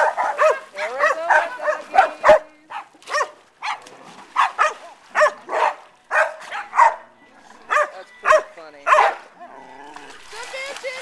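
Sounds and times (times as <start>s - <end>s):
dog barking: 0.0s - 7.1s, 7.7s - 9.4s.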